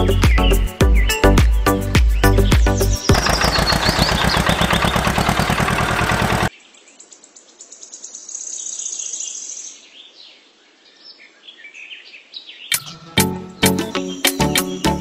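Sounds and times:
birds chirping: 2.2s - 8.2s
loud fast rhythmic sound: 3.1s - 6.5s.

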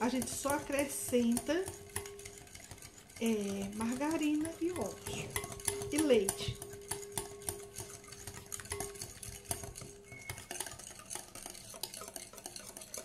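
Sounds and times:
whisk clicking against glass bowl: 0.0s - 13.0s.

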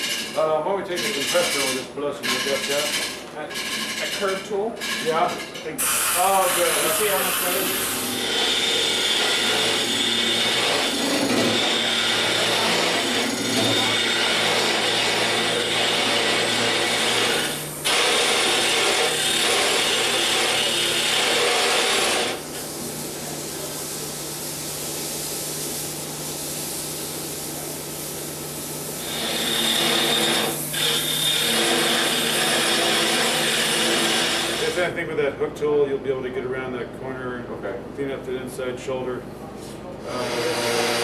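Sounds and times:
turning tool scraping wood: 0.0s - 22.7s, 29.0s - 34.8s, 40.0s - 41.0s
lathe motor hum: 6.3s - 22.5s, 29.0s - 34.8s.

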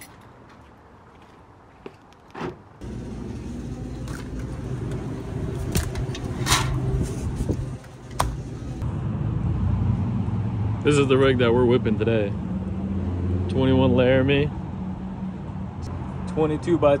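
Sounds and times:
truck engine running: 2.8s - 8.8s.

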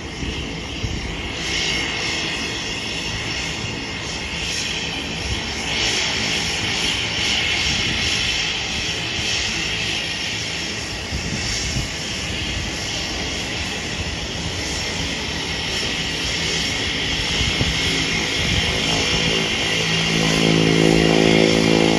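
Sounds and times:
turboprop engine and propeller: 0.0s - 21.9s.

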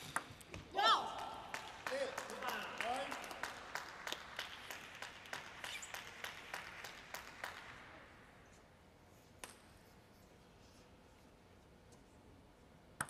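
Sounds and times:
audience clapping: 1.1s - 8.0s.

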